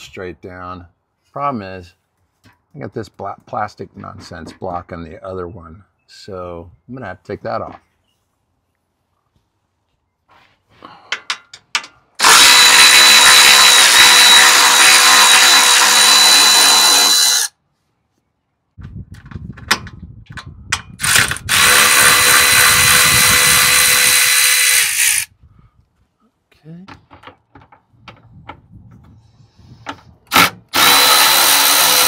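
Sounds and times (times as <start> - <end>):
cordless power tool whine: 12.2 - 17.5, 21.0 - 25.3, 30.3 - 32.0.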